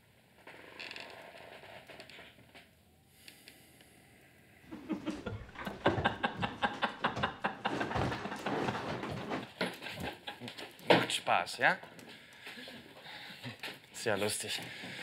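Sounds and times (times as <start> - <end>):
men laughing heartily: 4.7 - 10.5.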